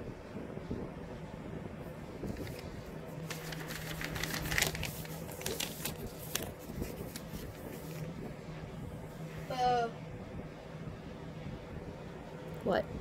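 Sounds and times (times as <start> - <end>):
fabric rustling and clicking: 3.3 - 8.0.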